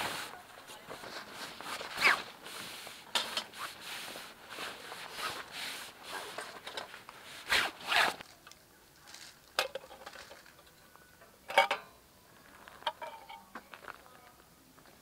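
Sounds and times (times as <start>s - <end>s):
rasping swishes: 7.2s - 8.2s.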